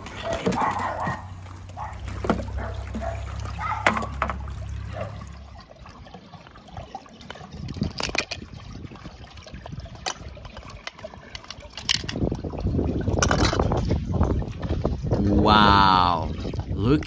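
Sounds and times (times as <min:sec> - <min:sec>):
water trickling: 0:00.0 - 0:17.0
low hum: 0:01.5 - 0:05.8.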